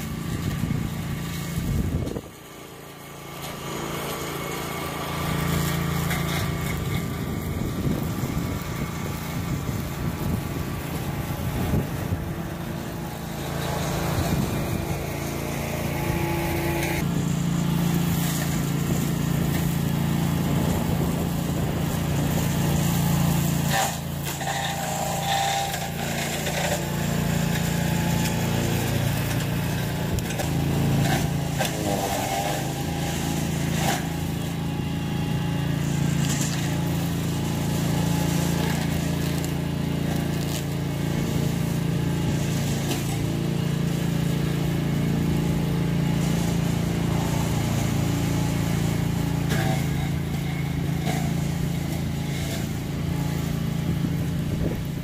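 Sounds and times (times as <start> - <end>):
brush mower engine running: 0.0 - 55.0.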